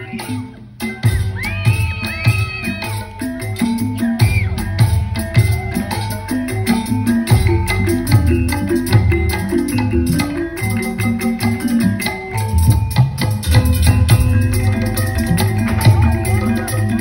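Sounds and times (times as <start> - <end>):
upbeat dance music over loudspeakers: 0.0 - 6.3.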